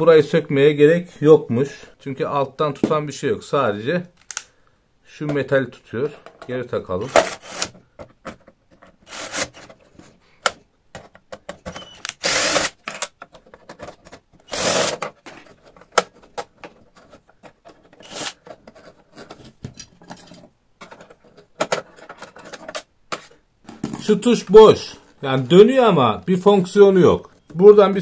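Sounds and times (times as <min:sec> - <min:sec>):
handling clicks and knocks: 0:06.2 - 0:09.0, 0:09.6 - 0:12.1, 0:12.8 - 0:24.3
drill-driver driving screws: 0:07.2 - 0:07.7, 0:09.1 - 0:09.6, 0:11.7 - 0:13.1, 0:14.4 - 0:15.0, 0:18.0 - 0:18.4.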